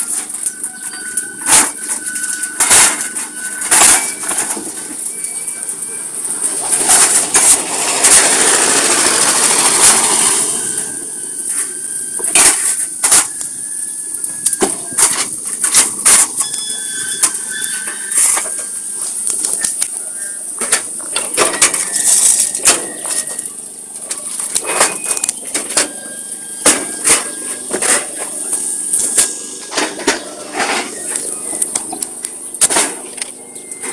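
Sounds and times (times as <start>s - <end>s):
concrete pavers clacking: 0.0s - 33.9s
steady machine hum: 0.0s - 33.9s
loud rush of noise: 4.4s - 15.8s.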